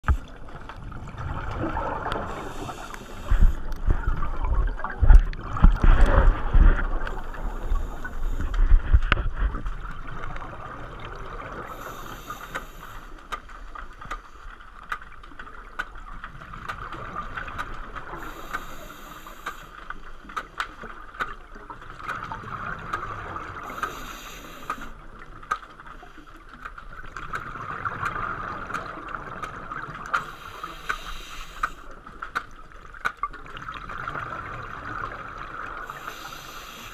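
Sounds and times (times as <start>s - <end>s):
bubbling and gurgling: 0.0s - 12.9s, 15.1s - 18.9s, 20.0s - 23.9s, 24.9s - 30.8s, 32.0s - 36.4s
diver breathing through regulator: 2.2s - 3.8s, 7.0s - 9.0s, 11.7s - 13.2s, 18.2s - 19.8s, 23.6s - 25.0s, 30.2s - 31.9s, 35.8s - 36.9s.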